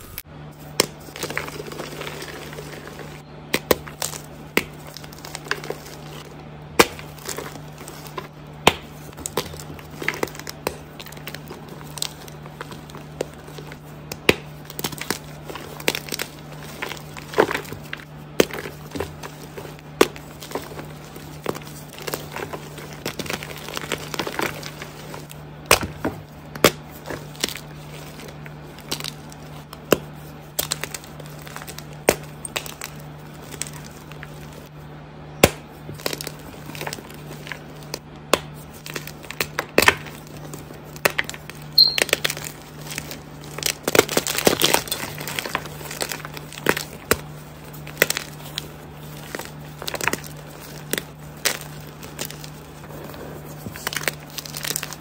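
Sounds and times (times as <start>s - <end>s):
chalk blocks crushed by hand: 41.0s - 55.0s.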